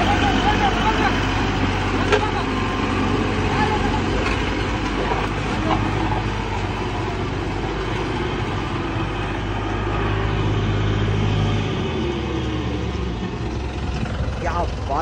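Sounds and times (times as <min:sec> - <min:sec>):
roller driving over rubble: 0:00.0 - 0:09.7
diesel road roller engine running: 0:00.0 - 0:15.0.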